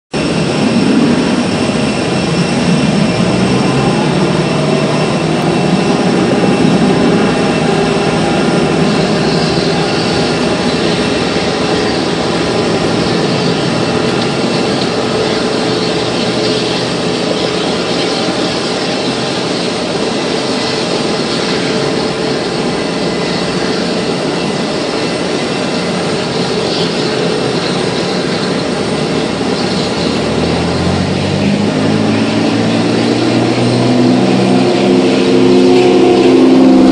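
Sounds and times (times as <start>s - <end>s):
broad rumble: 0.1s - 36.9s
jet turbine whine: 0.1s - 36.9s
high tones: 0.2s - 18.7s.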